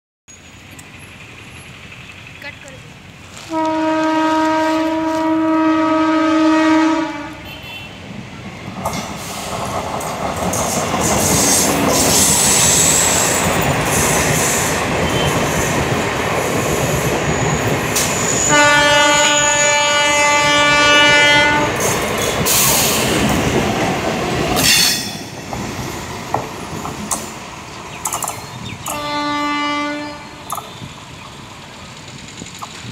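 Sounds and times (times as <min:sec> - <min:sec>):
train horn: 0:03.4 - 0:08.1, 0:18.0 - 0:21.9, 0:28.8 - 0:30.5
train wheels clattering on rails: 0:08.5 - 0:32.9.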